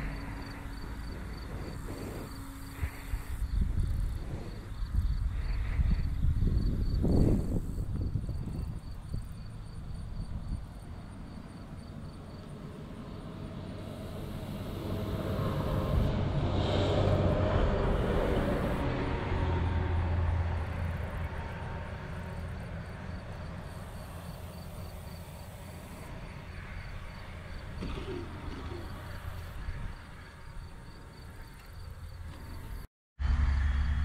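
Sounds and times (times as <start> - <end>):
wind rumbling on microphone: 0.0 - 34.0
model airplane engine: 10.8 - 33.7.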